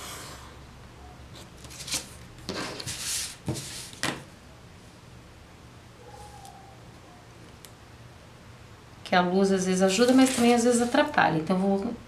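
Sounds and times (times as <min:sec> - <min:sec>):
paper scraping rustle: 0:01.4 - 0:04.1, 0:09.9 - 0:11.1.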